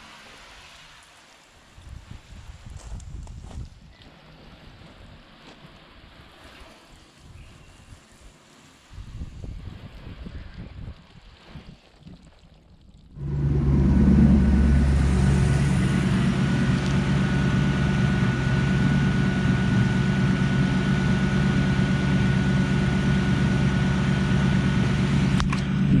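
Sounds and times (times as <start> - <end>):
car engine droning: 13.2 - 26.0
faint high whine: 13.2 - 26.0.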